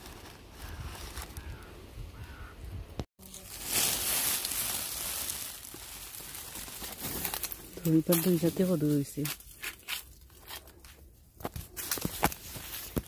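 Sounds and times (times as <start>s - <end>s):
rustling of vines and leaves: 0.0s - 2.6s, 3.2s - 13.0s.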